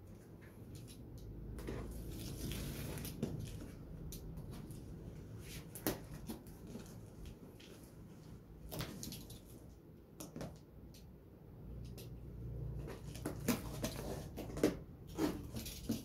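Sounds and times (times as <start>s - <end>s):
cardboard rustling and scraping: 1.6s - 9.6s, 12.8s - 16.0s.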